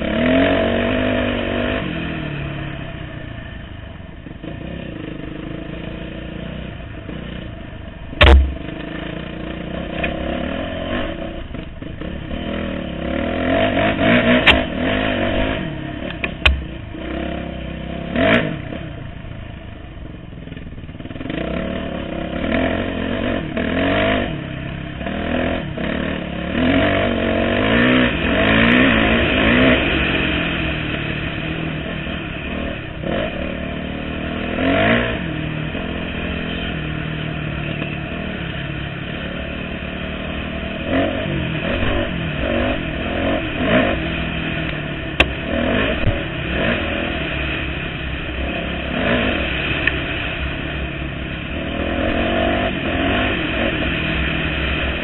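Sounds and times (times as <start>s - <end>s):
dirt bike engine revving: 0.0s - 3.6s, 4.2s - 19.2s, 20.5s - 55.0s
sharp knocks: 8.2s - 8.9s.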